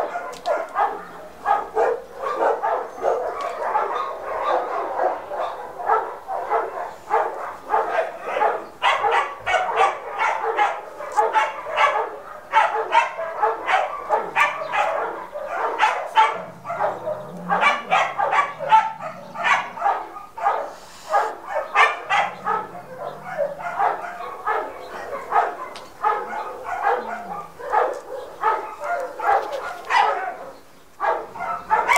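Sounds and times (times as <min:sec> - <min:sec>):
dog barking: 0:00.0 - 0:31.9.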